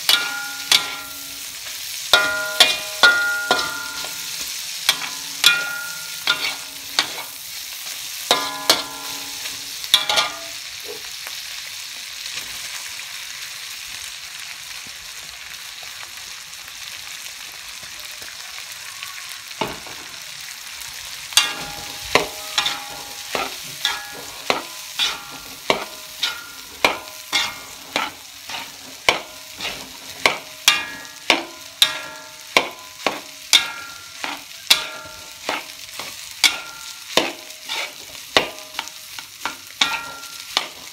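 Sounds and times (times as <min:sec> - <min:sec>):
metal spatula clanging on wok: 0:00.0 - 0:11.0, 0:21.3 - 0:40.9
food sizzling: 0:00.0 - 0:40.9.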